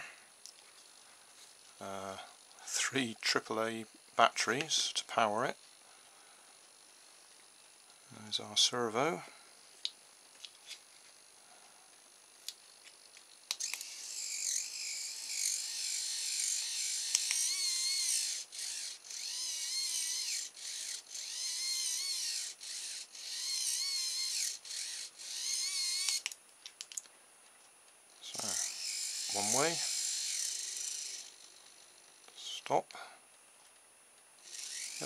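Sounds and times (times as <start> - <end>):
servo motor whirring: 13.4 - 26.4, 28.2 - 32.6, 34.4 - 35.0.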